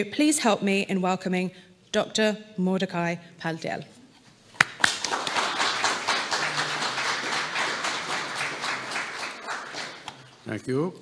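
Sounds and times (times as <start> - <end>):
single sharp clap: 4.6 - 10.3
audience applauding: 4.6 - 10.4.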